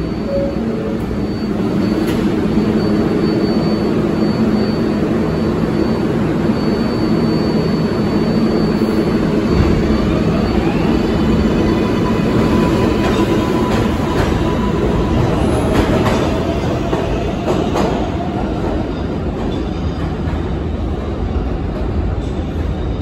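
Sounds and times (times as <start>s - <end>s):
subway train rumbling and clicking: 0.0s - 23.0s.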